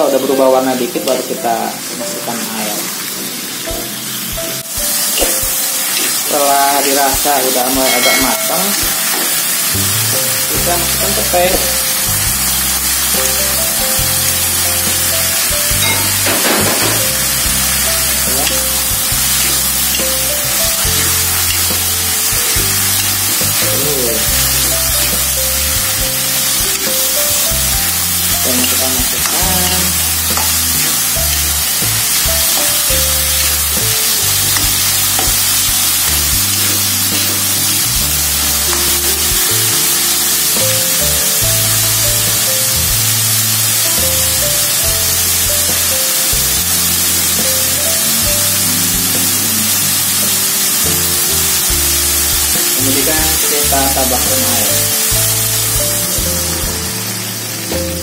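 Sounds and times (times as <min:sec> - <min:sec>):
background music: 0:00.0 - 0:58.0
food sizzling in a wok: 0:00.0 - 0:58.0.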